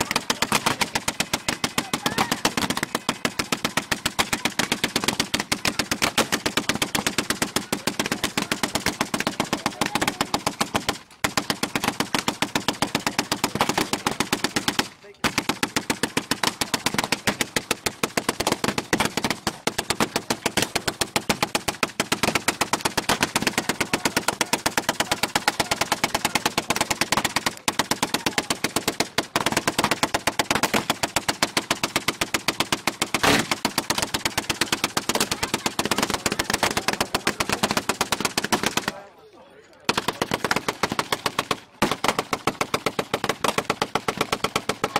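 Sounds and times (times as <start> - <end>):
gatling gun firing: 0.0 - 39.0, 39.9 - 44.9.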